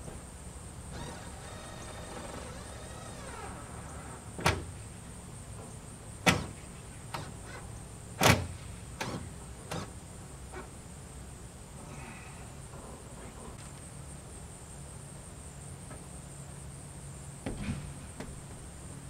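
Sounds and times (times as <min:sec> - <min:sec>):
power tool motor whining: 0:00.9 - 0:04.3.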